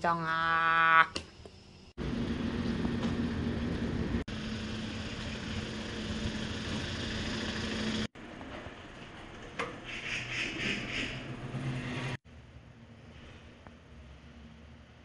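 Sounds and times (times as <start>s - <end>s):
vehicle engine hum: 2.0s - 8.4s.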